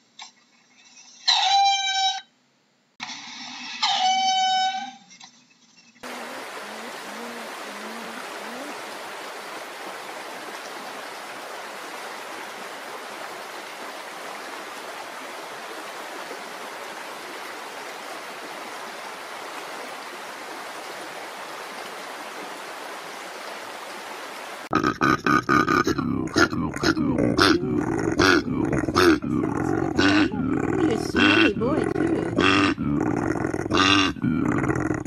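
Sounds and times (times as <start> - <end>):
stream water rushing: 6.0 - 24.7.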